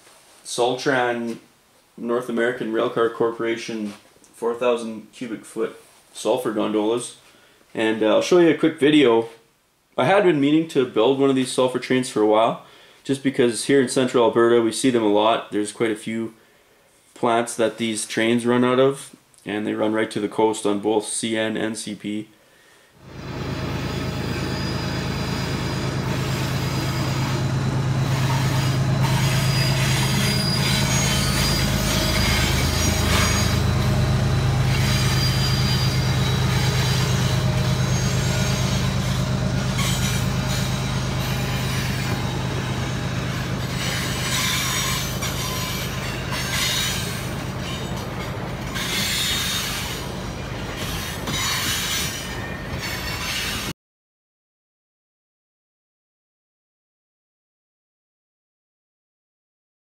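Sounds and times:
low hum: 23.1s - 53.2s
train wheels rumbling on rails: 23.1s - 53.7s.

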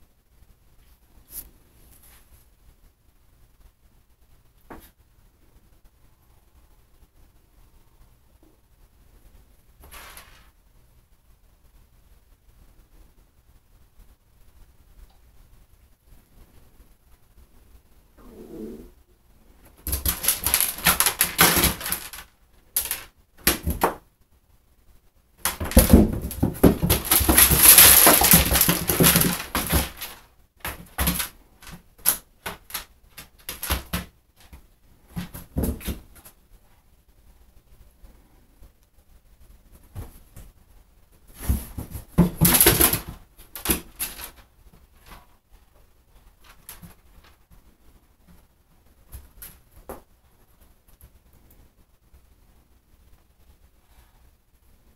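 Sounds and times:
cat scrabbling in bathtub: 19.8s - 24.0s, 25.4s - 36.4s, 41.3s - 44.4s
kibble and claws clicking on tub: 19.8s - 24.0s, 25.4s - 36.3s, 41.4s - 45.3s.

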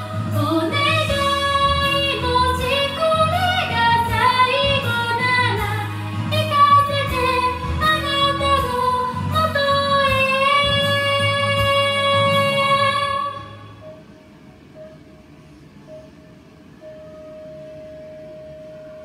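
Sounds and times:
woman singing into a microphone: 0.0s - 13.8s
pop backing track: 0.0s - 19.0s.

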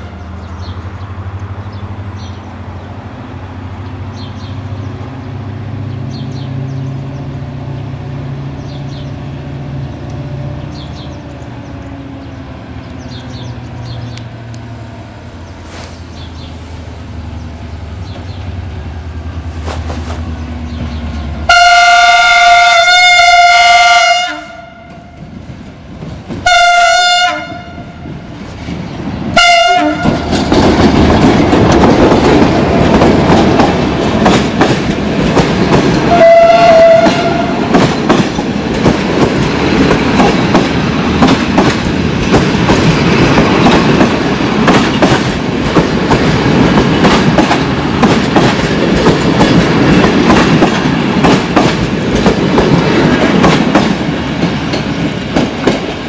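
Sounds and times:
diesel locomotive engine drone: 0.0s - 56.0s
train horn blasts: 21.5s - 25.2s, 26.4s - 28.0s, 29.4s - 30.3s, 36.1s - 37.7s
train wheels clattering over rail joints: 30.0s - 36.3s, 37.0s - 56.0s.

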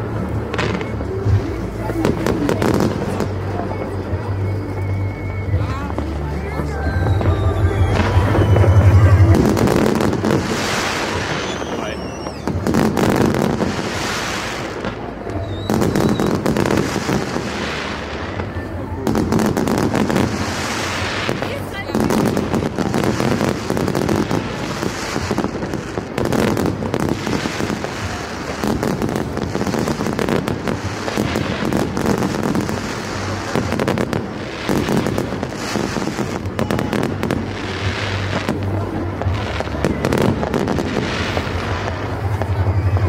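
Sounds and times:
fireworks bangs and crackling: 0.0s - 43.0s.

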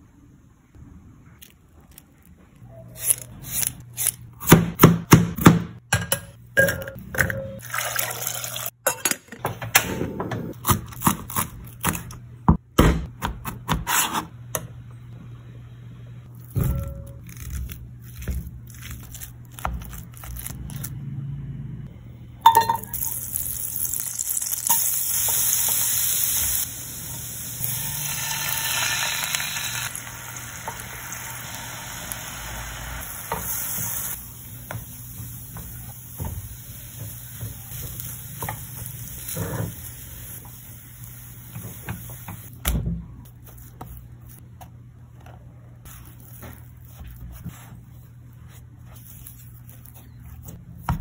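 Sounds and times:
butter sizzling in frying pan: 23.0s - 35.5s.

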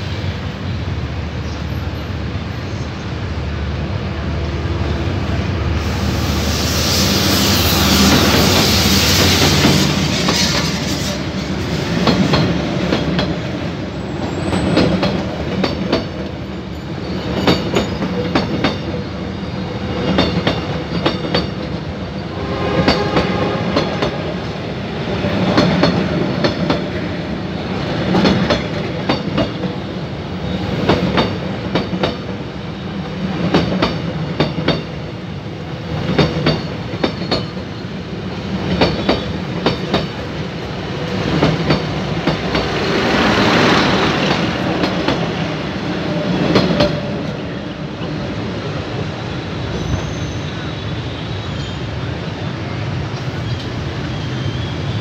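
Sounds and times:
train coaches rumbling past: 0.0s - 55.0s
wheels clickety-clack over rail joints: 8.0s - 21.9s, 25.1s - 35.1s, 35.7s - 50.4s
wheel squeal: 49.7s - 51.9s, 53.4s - 55.0s.

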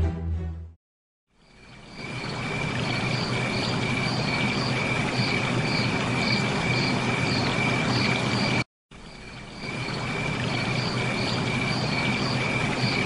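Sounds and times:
insect chirp pulsing: 1.3s - 13.0s
insects trilling: 1.3s - 13.0s.

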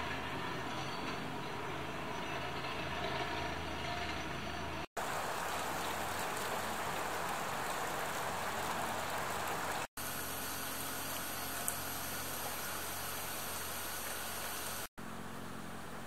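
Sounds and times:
outdoor rushing hiss: 5.0s - 14.9s.

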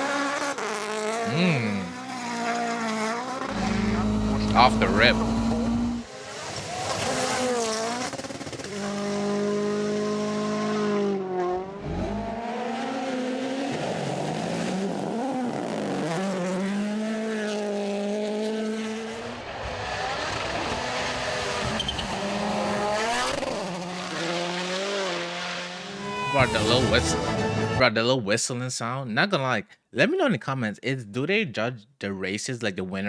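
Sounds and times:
rally car engines revving: 0.0s - 27.3s
turbo whistling: 3.5s - 6.0s.

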